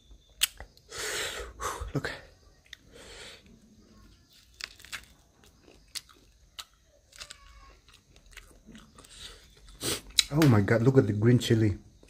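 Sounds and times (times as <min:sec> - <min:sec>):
chewing and crunching food: 0:02.6 - 0:10.4.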